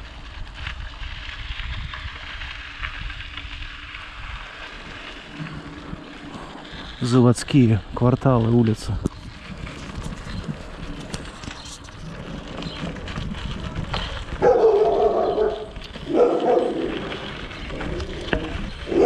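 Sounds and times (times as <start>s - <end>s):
dog barking loudly: 14.4s - 17.2s.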